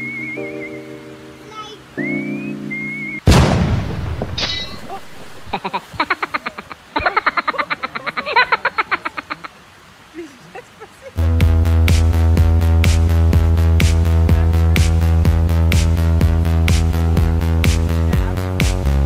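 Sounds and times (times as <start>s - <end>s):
loud splash into water: 3.2s - 6.1s
rapid even pulses: 11.2s - 18.9s
electronic dance music: 11.4s - 19.0s.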